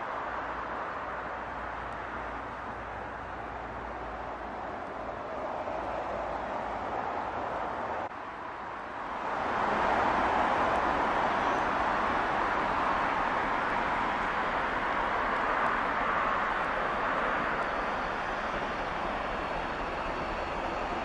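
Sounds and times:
steam locomotive exhaust: 11.1s - 21.0s.

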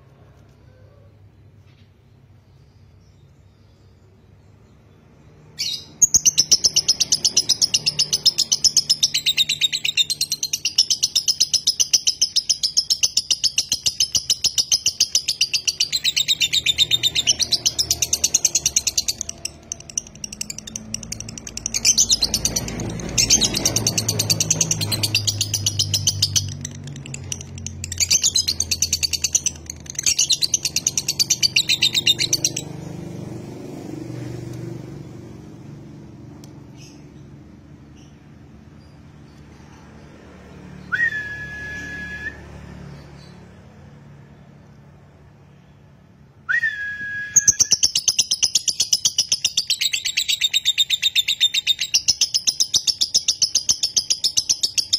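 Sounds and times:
lovebird chattering: 5.6s - 32.7s, 47.5s - 54.9s.

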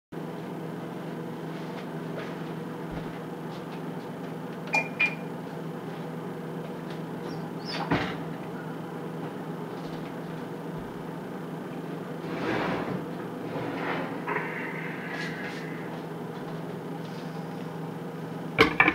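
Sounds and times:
low kitchen hum: 0.2s - 18.9s.

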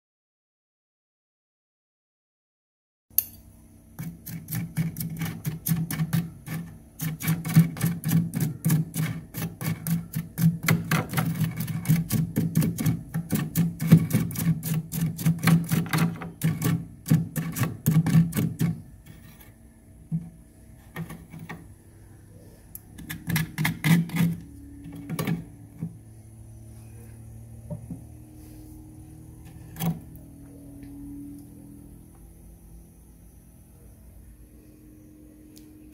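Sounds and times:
spoon scraping frost: 4.0s - 19.6s, 23.0s - 25.1s.

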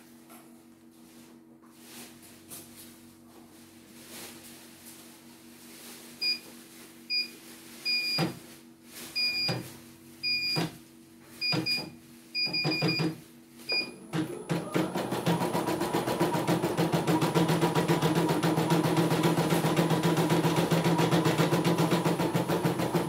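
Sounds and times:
embroidery machine stitching: 13.9s - 23.0s.

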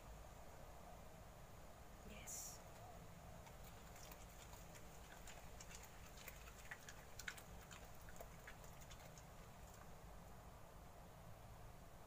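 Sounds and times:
dog chewing leaves: 3.4s - 10.0s.

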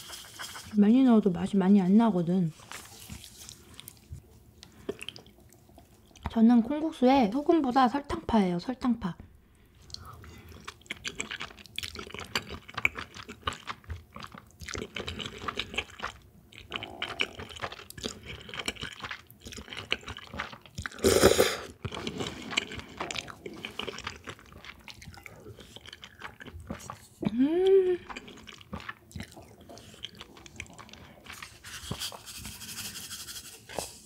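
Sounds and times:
wet chewing and smacking: 2.6s - 6.4s, 9.8s - 21.0s, 21.7s - 32.4s
slurping noodles: 16.7s - 27.1s.

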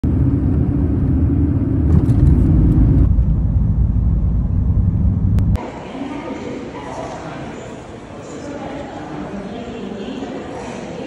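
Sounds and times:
car cabin road and engine rumble: 0.0s - 5.6s.

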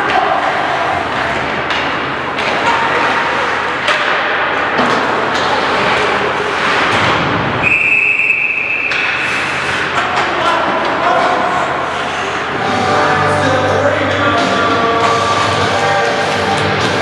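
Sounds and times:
pucks and sticks hitting boards: 0.0s - 7.7s, 8.6s - 11.6s
rink crowd hubbub: 0.0s - 17.0s
referee's whistle: 7.6s - 9.1s.

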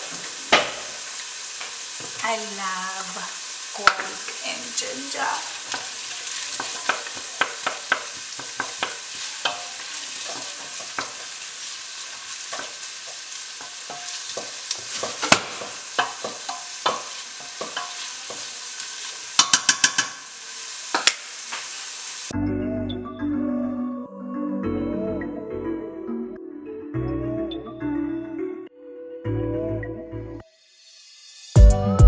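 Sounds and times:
onions sizzling in oil: 0.0s - 22.4s
wooden spoon scraping pot: 5.7s - 18.6s.

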